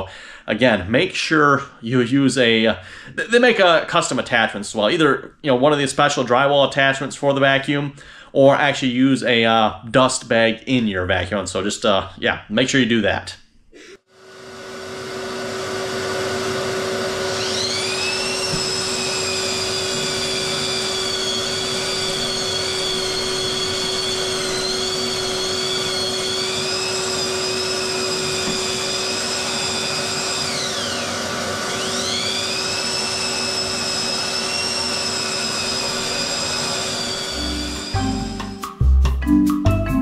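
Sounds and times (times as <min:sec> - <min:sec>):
vacuum humming: 0:14.1 - 0:38.6
drywall sander whining: 0:14.1 - 0:38.7.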